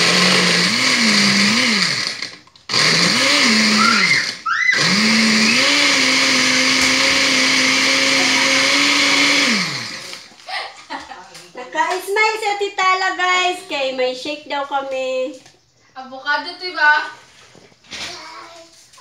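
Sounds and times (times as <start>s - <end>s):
electric blender running: 0.0s - 10.4s.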